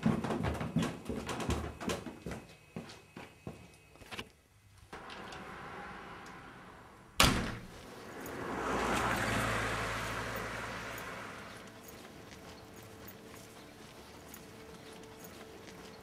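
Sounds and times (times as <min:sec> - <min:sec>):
car passing on wet road: 0:05.0 - 0:12.4.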